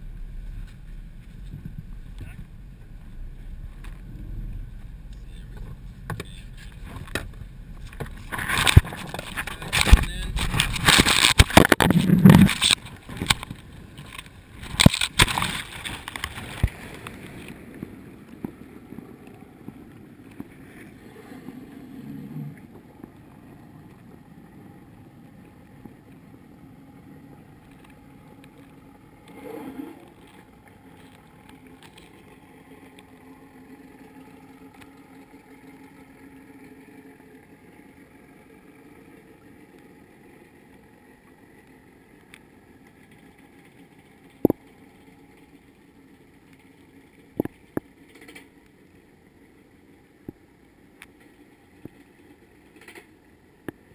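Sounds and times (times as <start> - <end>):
muffled underwater sound: 0.0 - 15.2
water splashing and rushing: 0.0 - 48.6
boat engine hum underwater: 0.0 - 53.9.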